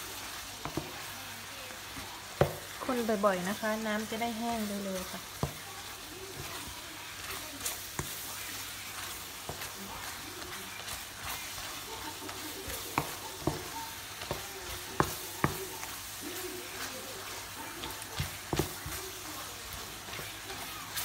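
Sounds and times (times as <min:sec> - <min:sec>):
fruit sizzling in syrup: 0:00.0 - 0:21.0
spatula knocking pan: 0:00.6 - 0:01.1, 0:02.3 - 0:21.0.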